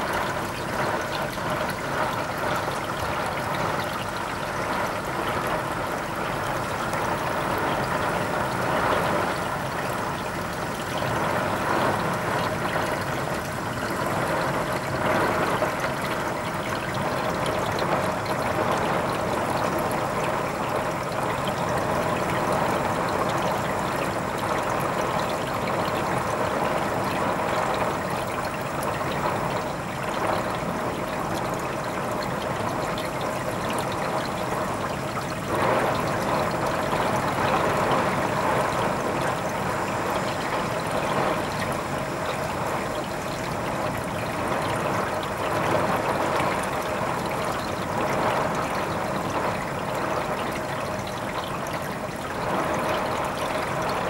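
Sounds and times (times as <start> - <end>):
heavy rain pouring: 35.4 - 51.0.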